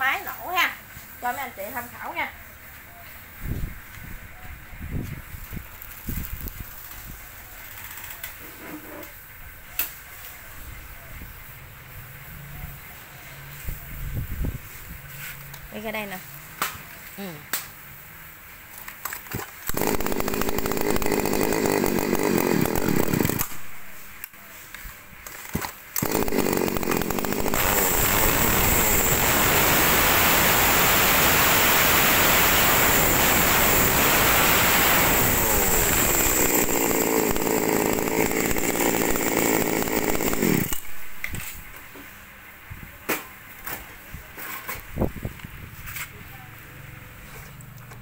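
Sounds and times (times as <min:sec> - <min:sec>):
two-stroke chainsaw running: 0:19.6 - 0:24.0, 0:25.3 - 0:41.0.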